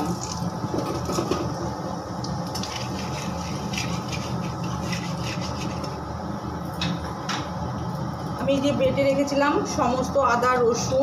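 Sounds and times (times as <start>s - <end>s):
chillies frying in hot oil: 0.0s - 6.4s
metal spatula scraping pan: 2.6s - 6.0s.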